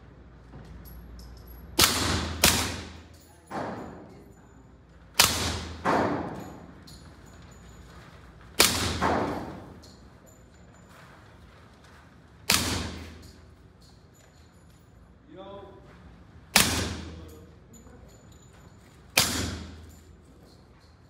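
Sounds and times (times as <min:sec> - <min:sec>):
suppressed pistol shots: 0:01.8 - 0:03.1, 0:05.2 - 0:06.3, 0:08.6 - 0:09.5, 0:12.5 - 0:13.2, 0:16.5 - 0:17.2, 0:19.2 - 0:20.0.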